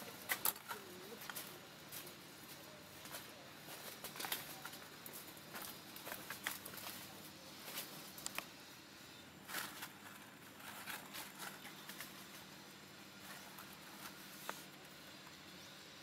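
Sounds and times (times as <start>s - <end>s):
faint steady hum: 0.0s - 16.0s
animals rustling on dry twigs: 9.4s - 15.3s.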